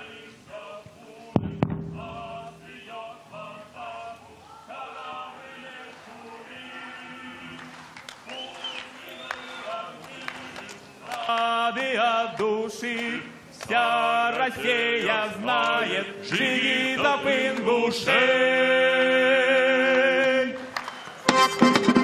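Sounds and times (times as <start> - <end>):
choir singing in harmony: 0.0 - 20.7
band with accordion: 21.2 - 22.0.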